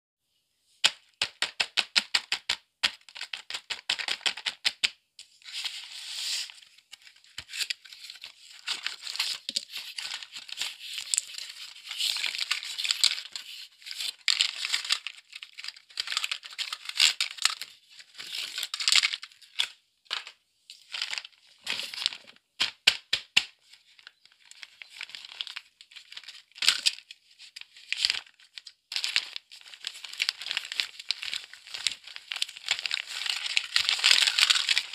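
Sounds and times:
plastic packaging crinkling: 0:07.0 - 0:19.4, 0:24.0 - 0:34.9.

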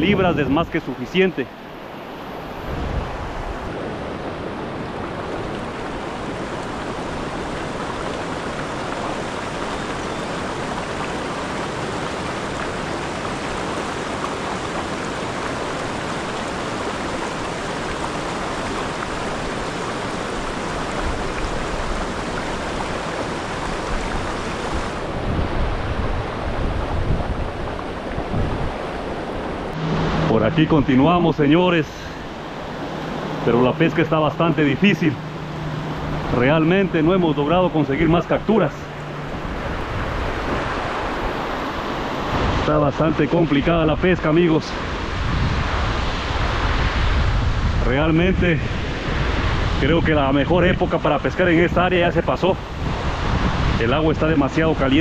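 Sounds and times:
river rushing over rapids: 0:00.0 - 0:55.0
low rumbling: 0:24.8 - 0:41.6.

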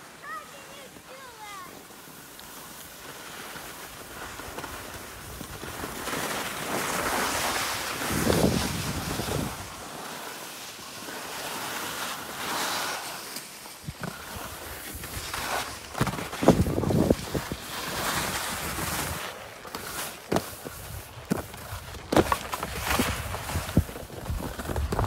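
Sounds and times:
skis scraping over snow: 0:00.0 - 0:25.0
wind on microphone: 0:07.2 - 0:09.8, 0:16.0 - 0:19.2, 0:22.6 - 0:25.0.

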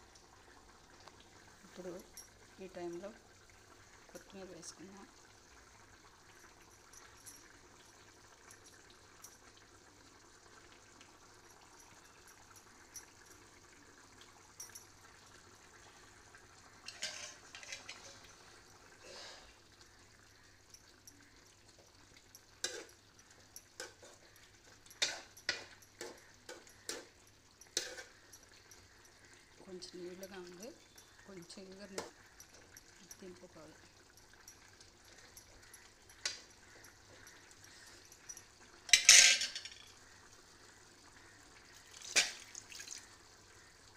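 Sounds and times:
curry bubbling: 0:00.0 - 0:43.9
spoon clinking against pan: 0:16.9 - 0:18.3, 0:22.2 - 0:29.0, 0:34.1 - 0:40.0.

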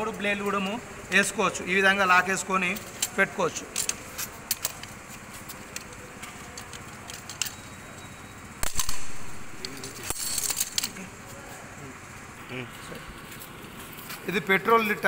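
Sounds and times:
small metal clicks and knocks: 0:02.6 - 0:08.1, 0:09.6 - 0:11.0.

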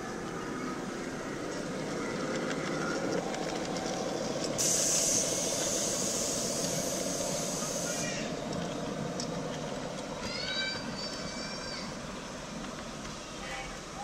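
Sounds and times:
miniature train rumbling on track: 0:00.0 - 0:14.0
rail clicks: 0:00.0 - 0:14.0
loud high hiss: 0:04.6 - 0:08.4.

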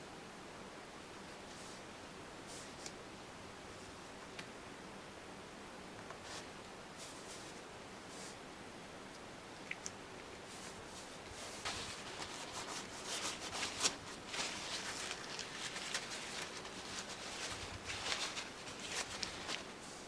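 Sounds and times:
paper towel rustling: 0:06.2 - 0:08.4, 0:10.4 - 0:20.0.

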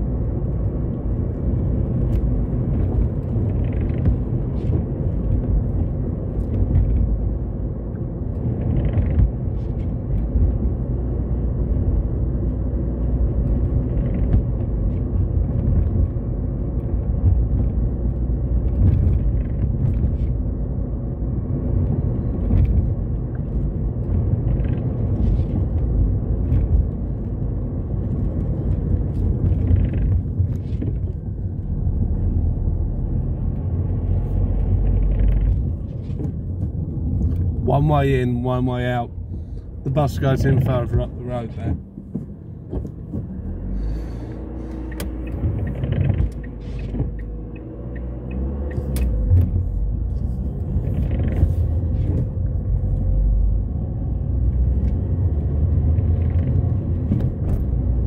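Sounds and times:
car engine and tyre rumble: 0:00.0 - 0:58.0.

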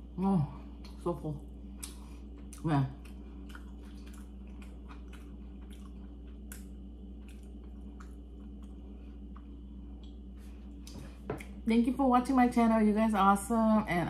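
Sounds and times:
steady low hum: 0:00.0 - 0:14.0
person chewing food: 0:01.6 - 0:11.6.

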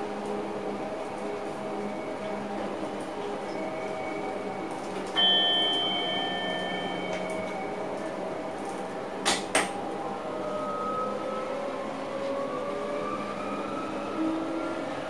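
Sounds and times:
electric train hum: 0:00.0 - 0:15.0
bell-like ding: 0:05.2 - 0:07.8.

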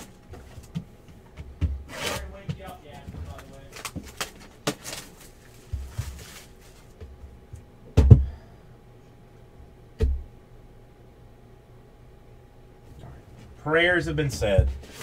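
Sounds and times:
cardboard box rustling: 0:03.3 - 0:06.9.

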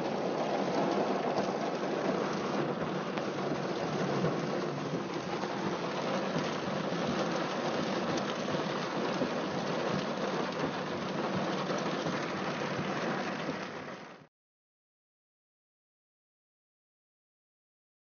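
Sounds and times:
steady rain falling: 0:00.0 - 0:14.3.

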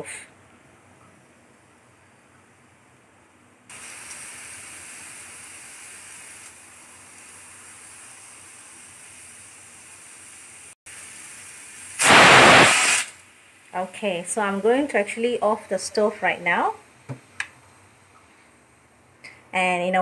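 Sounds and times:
pressure cooker steam hissing: 0:03.7 - 0:13.2.

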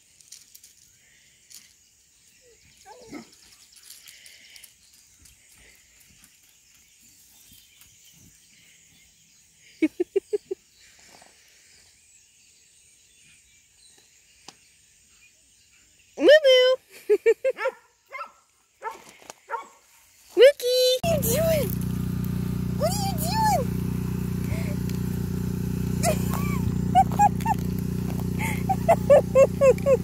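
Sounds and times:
high-pitched dog barks: 0:17.6 - 0:19.8
dog whining cry: 0:26.0 - 0:27.6, 0:28.4 - 0:30.0.

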